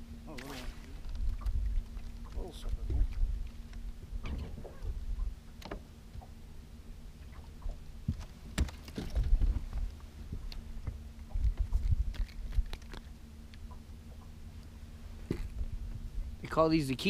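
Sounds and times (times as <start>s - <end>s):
steady low hum: 0.0s - 17.0s
water and wind rumble: 0.0s - 17.0s
clicks and knocks on boat: 8.0s - 13.0s.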